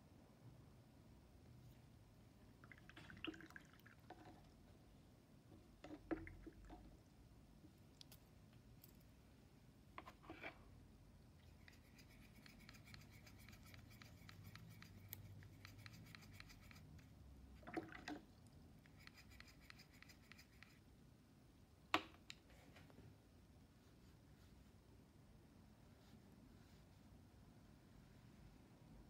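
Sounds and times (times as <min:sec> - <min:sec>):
paintbrush scratching on paint pan: 0:11.4 - 0:17.2, 0:18.8 - 0:20.8.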